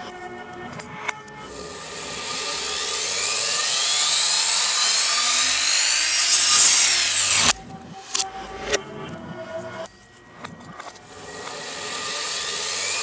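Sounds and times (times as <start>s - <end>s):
electric miter saw cutting wood: 1.5s - 8.8s, 10.5s - 13.0s.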